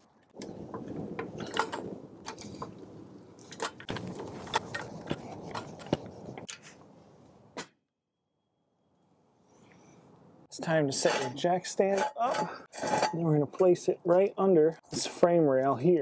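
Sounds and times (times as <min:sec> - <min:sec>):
floor jack clicking and clanking: 0:00.7 - 0:02.7.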